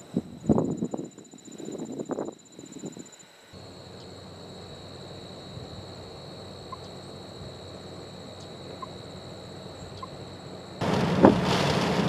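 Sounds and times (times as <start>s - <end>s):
high insect trill: 0.0s - 10.9s
low outdoor rumble: 3.6s - 12.0s.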